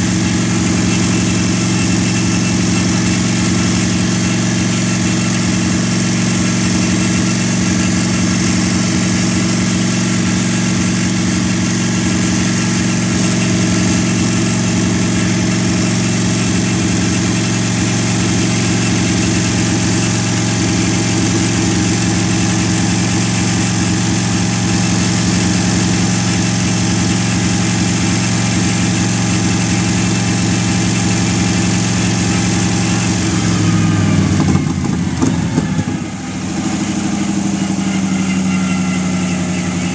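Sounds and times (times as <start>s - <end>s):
engine idling: 0.0s - 39.9s.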